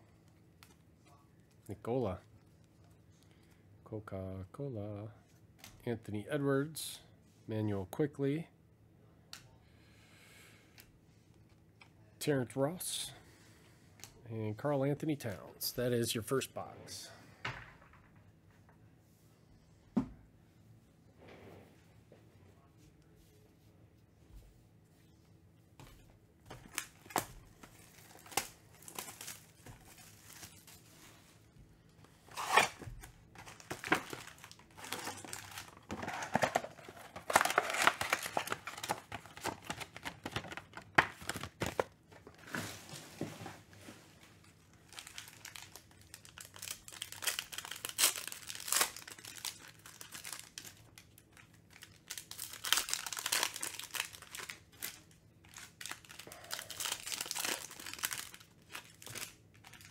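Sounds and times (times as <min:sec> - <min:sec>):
foil wrappers crinkling and tearing: 0:26.7 - 0:31.1, 0:32.1 - 0:42.5, 0:44.4 - 0:59.9.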